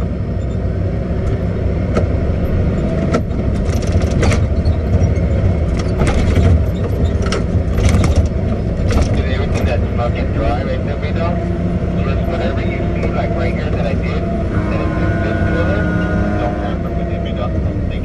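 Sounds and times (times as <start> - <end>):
diesel engine running: 0.0 - 18.0
machine clanking and rattling: 2.5 - 10.0.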